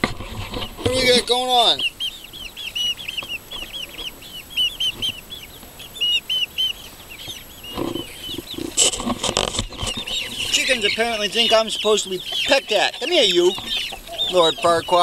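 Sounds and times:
chickens peeping: 0.0 - 15.0
camera knocks and rustling: 7.8 - 10.2.

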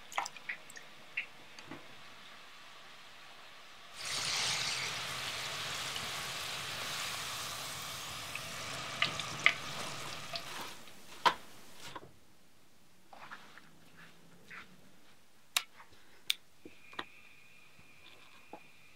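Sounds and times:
fries sizzling in hot oil: 1.8 - 11.1.

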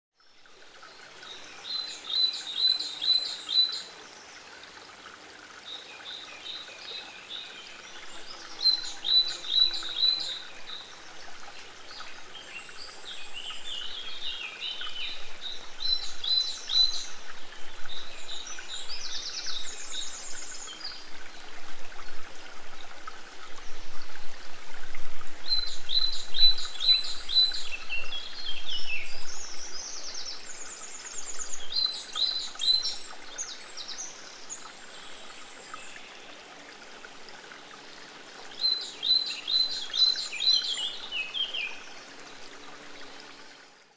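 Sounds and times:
songbirds singing: 0.2 - 4.8, 5.5 - 24.4, 25.4 - 36.8, 37.7 - 43.6
woodland stream flowing: 0.2 - 43.9.

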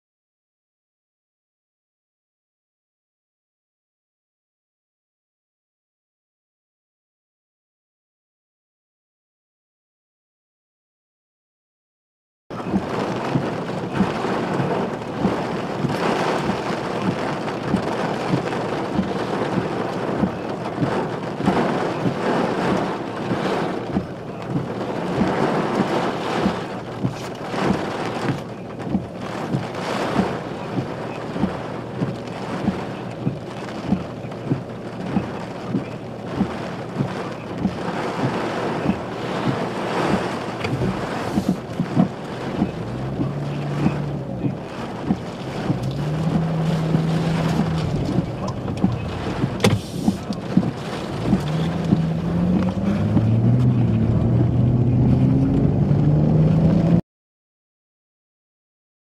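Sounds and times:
rain: 12.5 - 57.0
sharp pops: 45.1 - 53.7.

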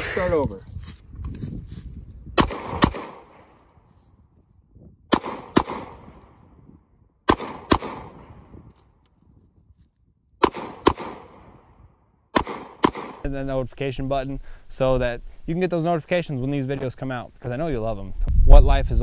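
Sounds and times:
handgun shots echoing: 2.4 - 3.5, 5.1 - 6.4, 7.3 - 8.6, 10.4 - 11.7, 12.3 - 13.3.

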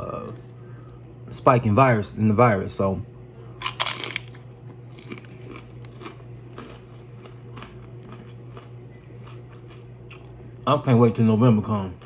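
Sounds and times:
crunchy bite into chip: 3.6 - 10.3
crunchy chewing: 3.6 - 10.4.

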